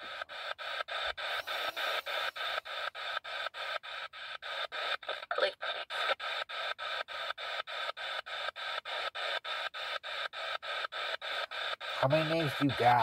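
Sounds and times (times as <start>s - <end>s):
chopped radio static: 0.0s - 13.0s
radio broadcast voice: 5.1s - 6.2s, 12.0s - 13.0s.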